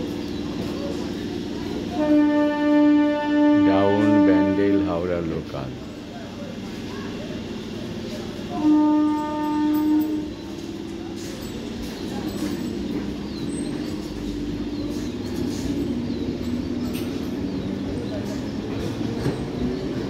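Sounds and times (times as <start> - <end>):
train wheels and motors rumbling: 0.0 - 20.0
train horn blast: 1.8 - 5.4, 8.4 - 10.7.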